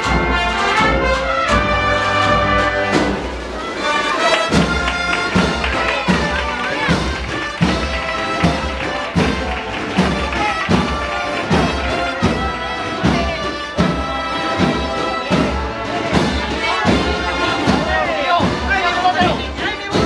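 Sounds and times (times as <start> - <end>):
brass melody with sliding notes: 0.0 - 20.0
bass drum beat: 4.4 - 20.0.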